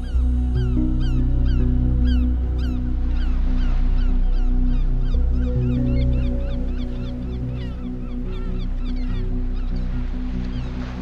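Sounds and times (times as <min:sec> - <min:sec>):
ambient music with low held tones: 0:00.0 - 0:11.0.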